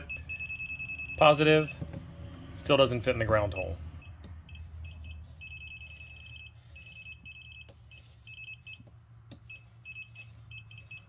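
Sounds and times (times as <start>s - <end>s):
voltage tester beeping: 0.0s - 1.4s, 3.6s - 8.9s, 9.5s - 11.0s.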